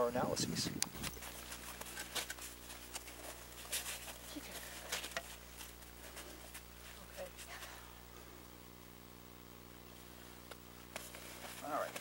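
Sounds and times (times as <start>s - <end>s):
steady low hum: 0.0s - 12.0s
people moving in snow: 1.0s - 8.0s, 11.0s - 12.0s.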